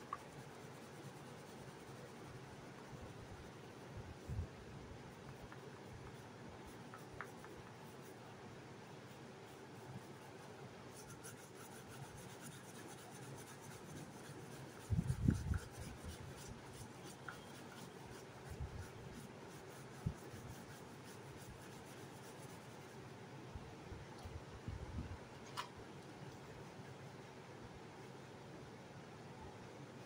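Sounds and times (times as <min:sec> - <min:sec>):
oil pastel rubbing on paper: 0:00.0 - 0:04.3, 0:05.1 - 0:08.3, 0:08.9 - 0:23.1.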